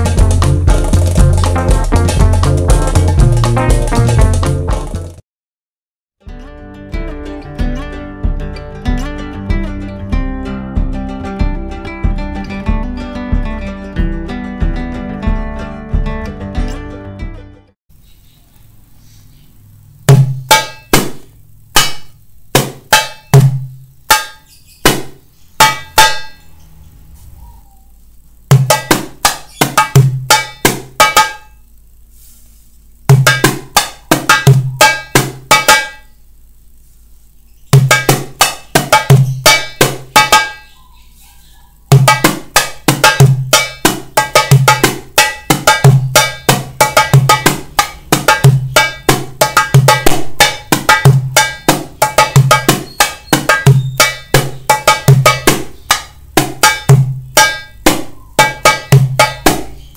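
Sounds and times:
darbuka played by hand: 0.0 - 5.2, 20.1 - 26.4, 28.5 - 31.5, 33.1 - 36.1, 37.8 - 40.7, 41.9 - 59.9.

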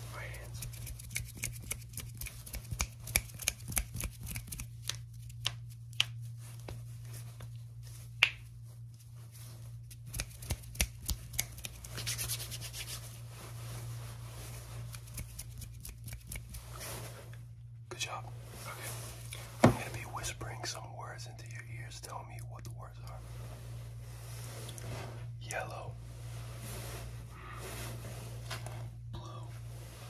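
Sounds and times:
low hum: 0.0 - 30.0
rubbing hiss on microphone: 11.7 - 17.4, 22.8 - 29.0.

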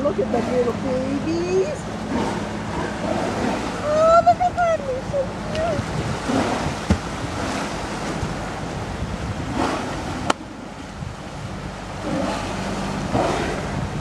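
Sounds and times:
moving water: 0.0 - 14.0
wind buffeting microphone: 0.0 - 14.0.

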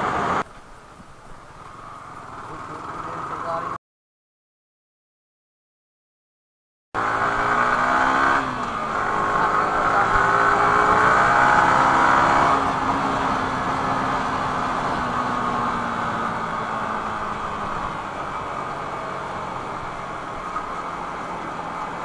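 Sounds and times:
motorcycle engine accelerating: 7.0 - 22.0.

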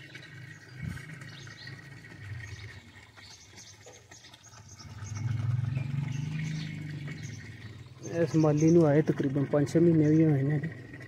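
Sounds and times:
birds chirping: 0.0 - 11.0
low drawn-out drone: 4.6 - 11.0
low hum: 4.6 - 11.0.

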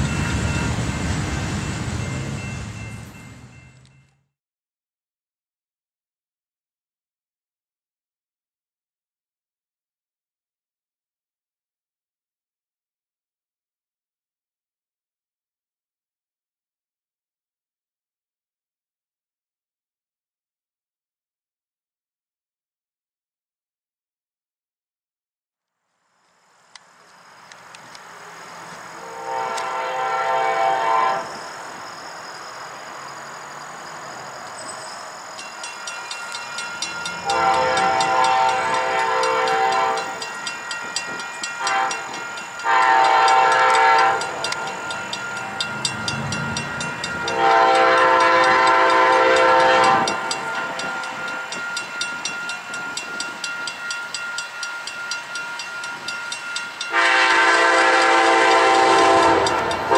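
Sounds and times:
crossing bells dinging: 0.0 - 4.3, 31.2 - 59.9
locomotive horn blasts: 29.0 - 31.4, 37.0 - 40.2, 41.6 - 51.6, 56.9 - 59.9.

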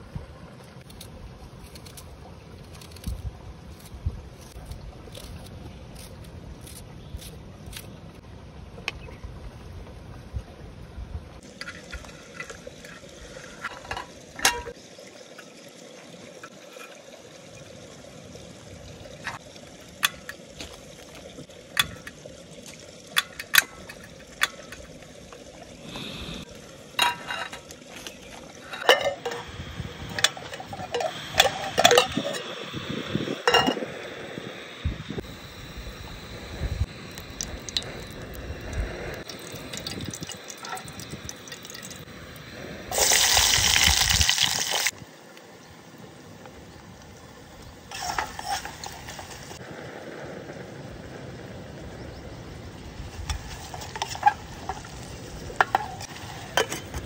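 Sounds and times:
water pouring into pot: 11.4 - 29.4, 36.8 - 42.1, 42.9 - 45.0, 47.9 - 49.6.

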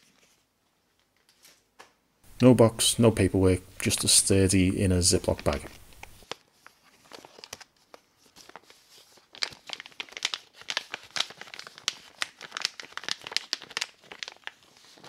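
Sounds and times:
plastic bag crinkling: 5.0 - 15.0.

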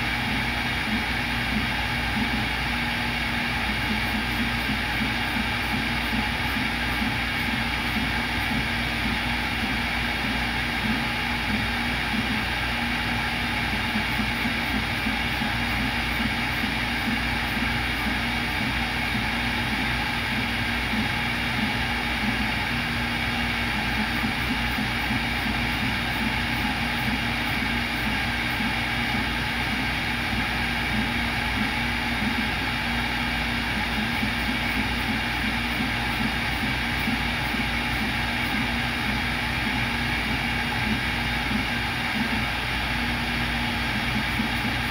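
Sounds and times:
cnc router spindle humming: 0.0 - 44.9.

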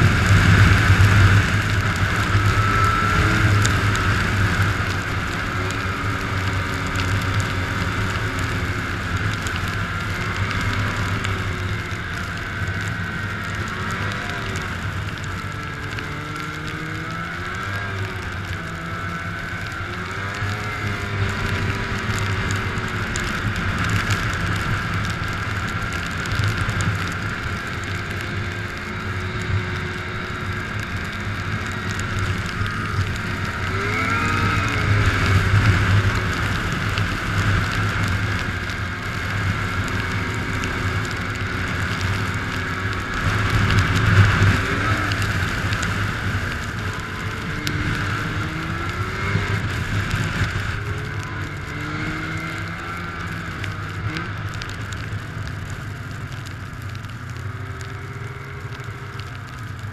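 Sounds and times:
snowmobile engine revving: 0.0 - 9.0, 28.9 - 53.3.

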